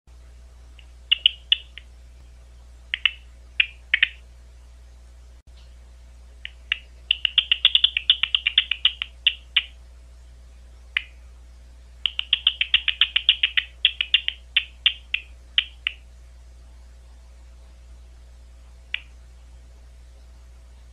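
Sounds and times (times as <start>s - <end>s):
low electrical hum: 0.1s - 20.9s
bat detector chirps: 1.1s - 1.8s, 2.9s - 4.2s, 6.5s - 9.7s, 12.0s - 16.0s.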